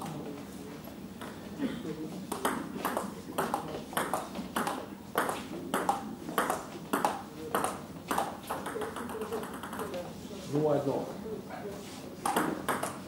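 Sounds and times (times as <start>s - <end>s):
table tennis ball hits: 2.3s - 9.9s, 12.2s - 13.0s.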